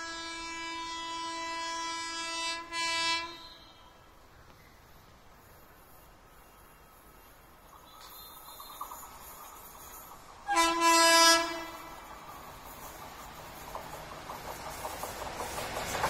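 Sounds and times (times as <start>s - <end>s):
locomotive horn blast: 0.0s - 3.9s, 10.5s - 12.0s
train rumble: 0.0s - 16.0s.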